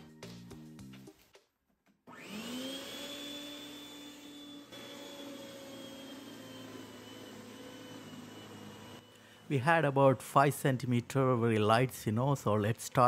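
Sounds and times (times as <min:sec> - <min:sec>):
electric snow thrower motor whine: 0:02.1 - 0:10.3.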